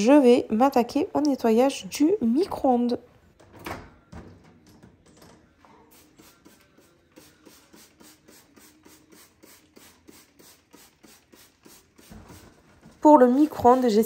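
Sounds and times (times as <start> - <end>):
trigger spray bottle spraying: 5.9 - 12.6.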